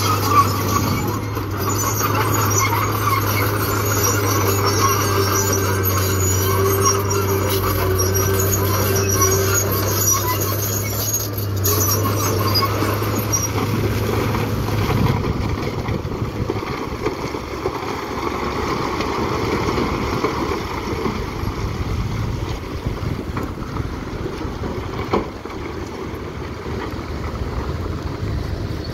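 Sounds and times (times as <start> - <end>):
dump truck engine running: 0.0 - 28.9
broken rock sliding out rumbling: 12.1 - 28.4.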